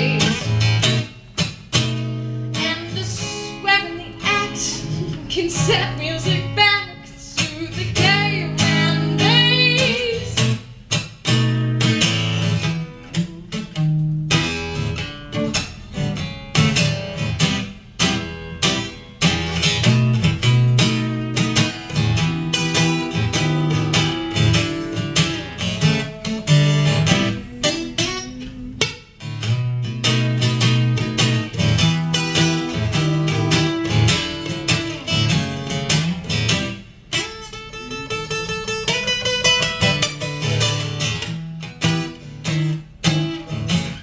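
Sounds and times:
woman singing with vibrato: 0.0s - 0.6s, 2.6s - 10.6s, 24.8s - 29.2s
acoustic guitar strumming: 0.0s - 44.0s.

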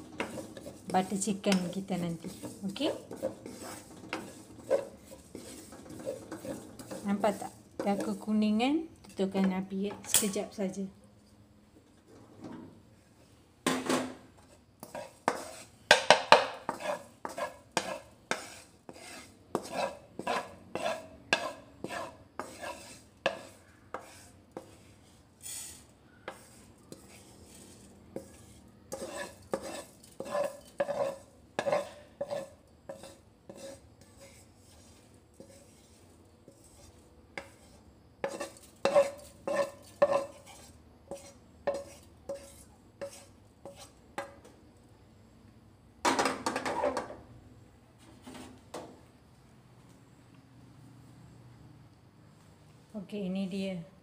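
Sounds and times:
wooden spoon scraping a wok: 0.0s - 10.7s, 12.0s - 44.6s, 46.1s - 47.2s, 48.0s - 48.9s.

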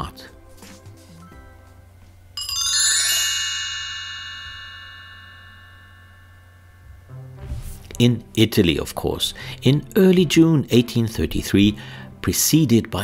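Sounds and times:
soft background music: 0.0s - 3.1s, 6.6s - 13.0s
bell-like chime tones: 2.4s - 7.1s.

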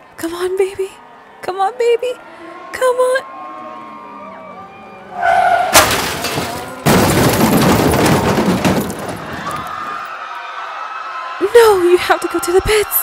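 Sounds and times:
tire squeal: 2.2s - 6.8s
car crash: 5.1s - 10.1s.

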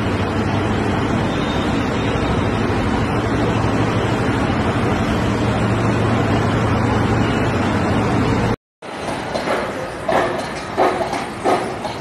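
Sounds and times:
truck engine hum: 0.0s - 8.6s.

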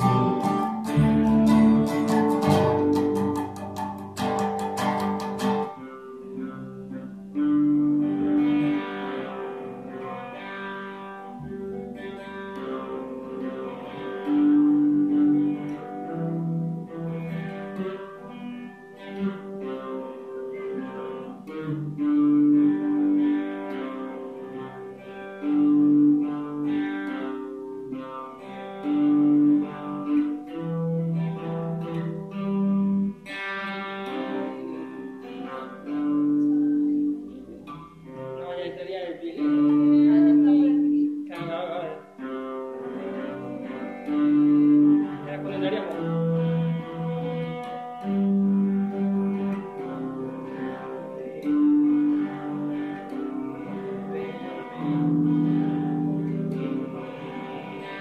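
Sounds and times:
guitar plucked and strummed: 0.0s - 58.0s.

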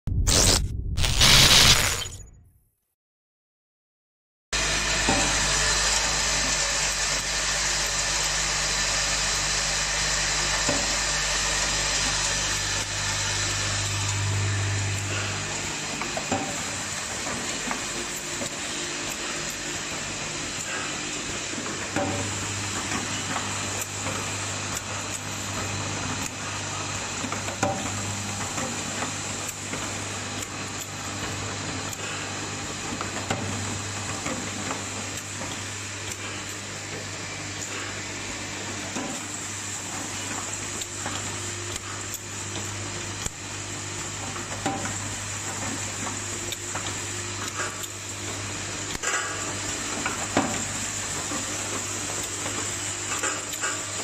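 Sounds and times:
mechanism clicks and clacks: 21.6s - 32.2s, 32.9s - 38.0s, 38.8s - 54.0s.

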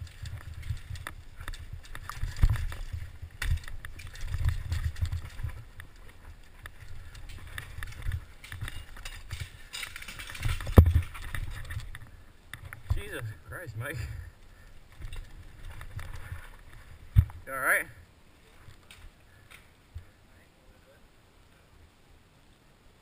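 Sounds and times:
mountain bike rattling over rocks: 0.0s - 17.9s.

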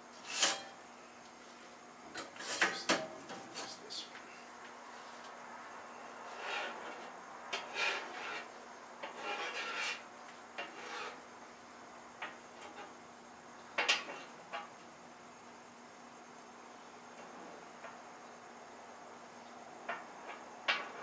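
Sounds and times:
spatula scraping a griddle: 0.1s - 0.8s, 2.2s - 2.9s, 6.2s - 11.3s, 12.2s - 13.0s.

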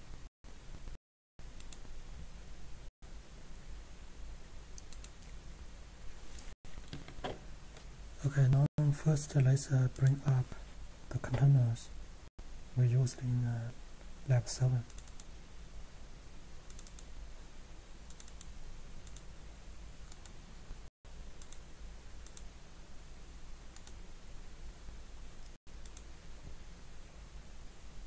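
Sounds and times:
computer mouse clicking: 1.6s - 1.9s, 4.7s - 5.4s, 14.9s - 15.3s, 16.7s - 17.1s, 18.1s - 19.3s, 20.1s - 20.4s, 21.4s - 21.6s, 22.2s - 22.5s, 23.8s - 24.0s, 25.8s - 26.1s.

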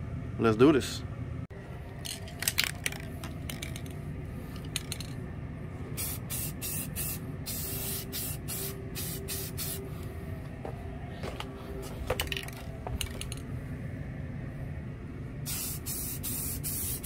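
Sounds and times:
spray paint can hissing: 6.0s - 9.8s, 15.5s - 17.0s.

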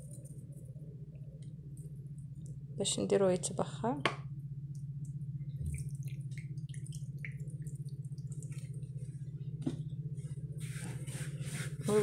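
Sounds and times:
steady low hum: 0.0s - 12.0s
water drips onto couscous: 4.7s - 9.0s.

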